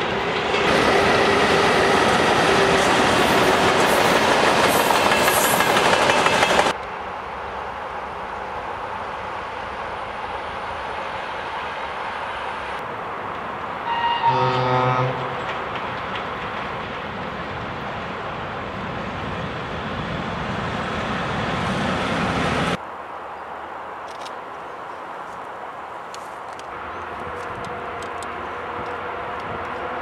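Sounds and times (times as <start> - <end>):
freight train rumbling past: 0.0 - 22.8, 26.7 - 30.0
distant train rumble: 0.0 - 30.0
train horn: 13.8 - 15.5, 26.7 - 30.0.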